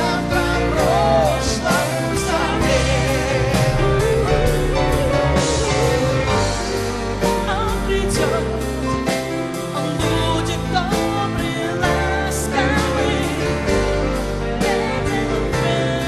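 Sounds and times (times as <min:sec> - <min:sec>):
instrumental backing music: 0:00.0 - 0:16.0
woman singing with vibrato: 0:03.2 - 0:08.8.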